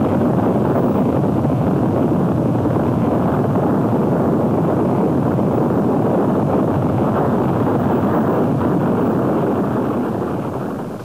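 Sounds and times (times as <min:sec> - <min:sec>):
tornado roaring: 0:00.0 - 0:11.0.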